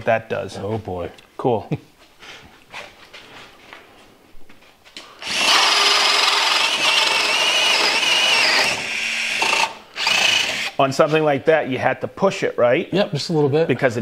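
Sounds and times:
cordless drill whining under load: 5.2 - 10.8.

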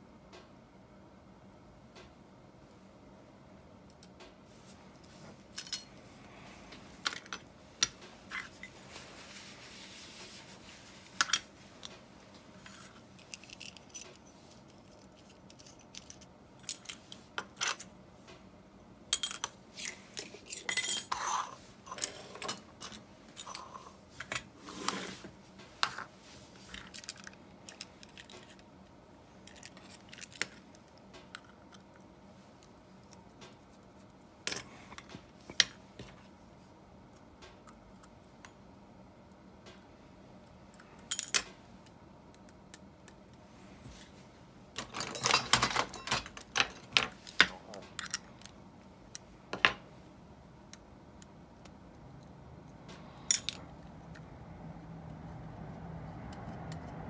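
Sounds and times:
metal parts clinking on wood: 44.8 - 48.3.

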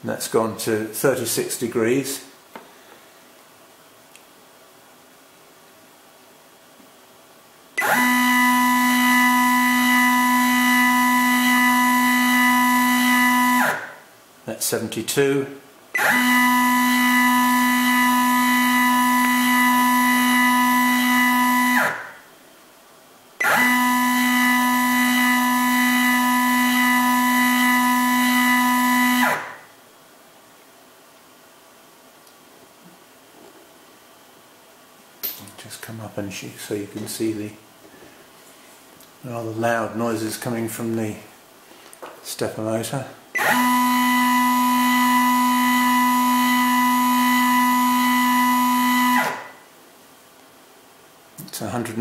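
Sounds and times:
stepper motor whine: 7.8 - 13.8, 16.0 - 22.0, 23.4 - 29.4, 43.4 - 49.4.

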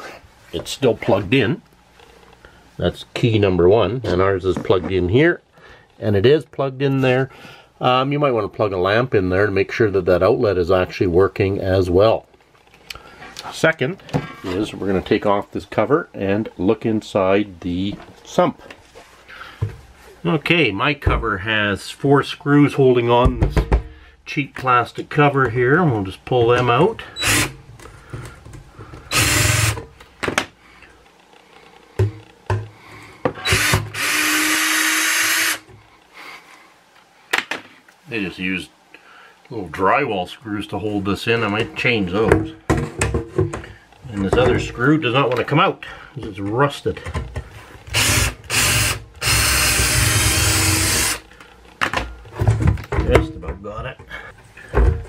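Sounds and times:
power drill running in bursts: 27.2 - 27.6, 29.1 - 29.8, 33.4 - 35.6, 47.9 - 51.2.

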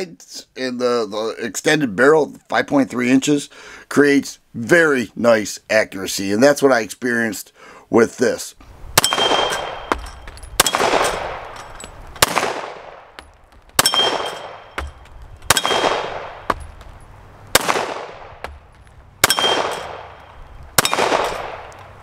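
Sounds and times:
pistol shots with echo: 9.0 - 11.6, 12.2 - 13.2, 13.8 - 16.6, 17.5 - 18.6, 19.2 - 21.8
ringing ping from steel targets: 9.0 - 11.8, 13.8 - 15.9, 19.2 - 21.5.

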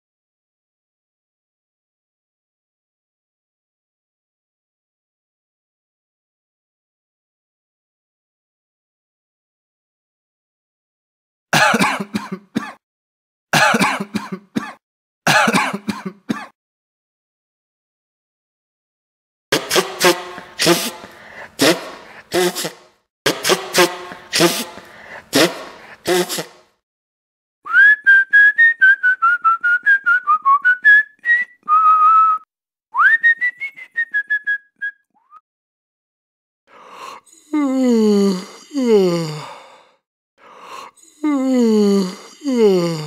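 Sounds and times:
person coughing: 11.6 - 12.8, 13.5 - 16.6, 19.6 - 26.6
person whistling a tune: 27.7 - 35.4.

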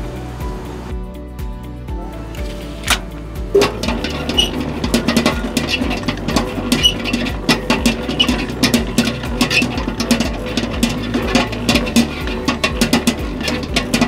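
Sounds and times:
dough hook knocking in bowl: 3.6 - 14.0.

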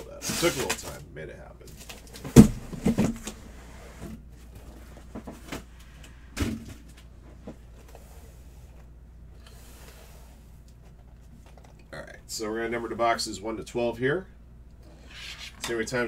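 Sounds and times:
cardboard boxes knocking: 2.2 - 3.3.

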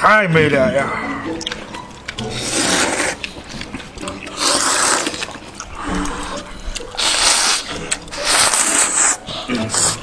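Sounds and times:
hissing noodle slurps: 2.3 - 3.3, 4.3 - 10.0.

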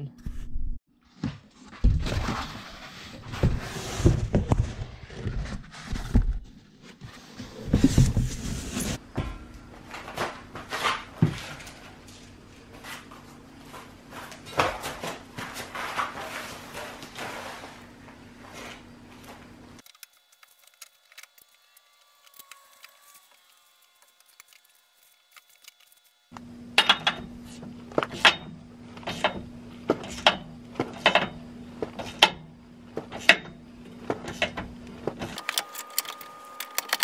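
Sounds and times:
foam and cardboard rustling: 1.2 - 9.0, 12.7 - 19.4.

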